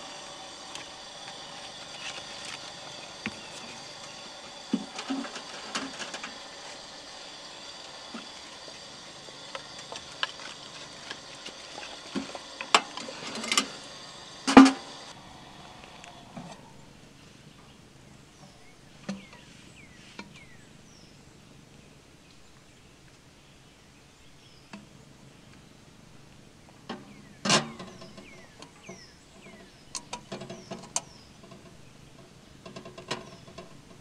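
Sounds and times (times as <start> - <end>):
kettle clanking on metal stove: 0.6 - 15.0, 26.8 - 34.0
small birds chirping: 0.7 - 12.6, 15.1 - 26.0, 27.0 - 34.0.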